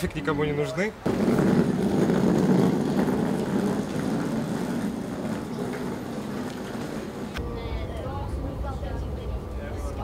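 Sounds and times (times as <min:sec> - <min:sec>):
train rumbling on rails: 0:01.1 - 0:07.4.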